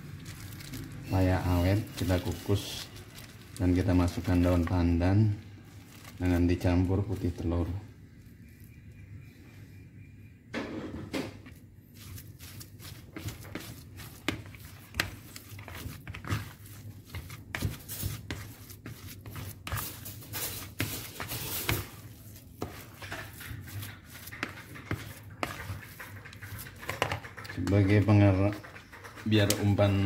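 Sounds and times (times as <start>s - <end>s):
paddle scraping plastic bowl: 11.5s - 30.0s.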